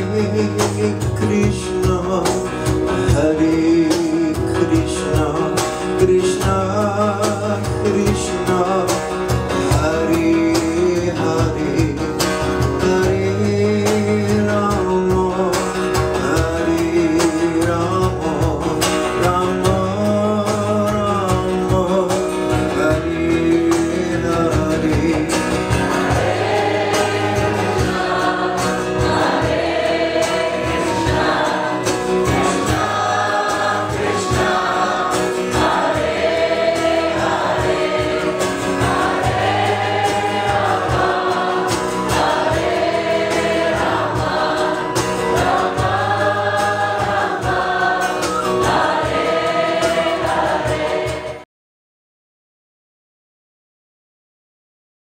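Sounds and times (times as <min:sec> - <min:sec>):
strummed acoustic guitar: 0:00.0 - 0:51.4
group chanting: 0:25.9 - 0:51.4.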